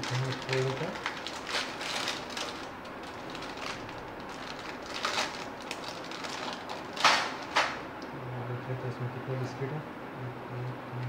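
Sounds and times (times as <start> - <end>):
plastic wrapper crinkling: 0.0 - 7.8.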